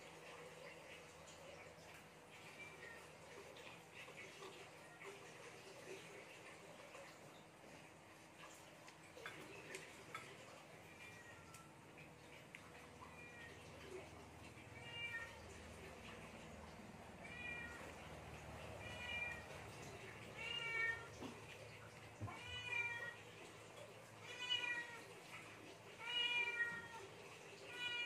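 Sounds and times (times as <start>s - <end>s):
cat meowing: 14.8s - 15.6s, 17.2s - 18.0s, 18.8s - 21.2s, 22.2s - 23.2s, 26.0s - 28.0s.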